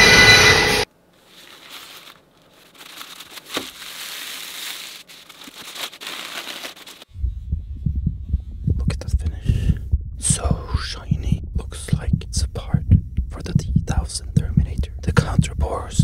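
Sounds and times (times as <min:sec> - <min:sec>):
paper wrapping crinkling: 0:00.9 - 0:07.1
low pulsing throb: 0:07.1 - 0:16.0.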